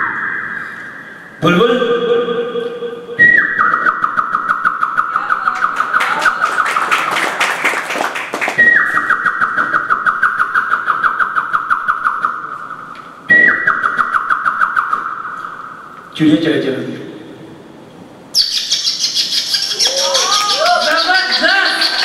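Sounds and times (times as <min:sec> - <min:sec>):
man whistling bird trills: 0:00.0 - 0:01.4, 0:03.2 - 0:05.2, 0:08.5 - 0:12.5, 0:13.3 - 0:15.9, 0:18.4 - 0:22.0.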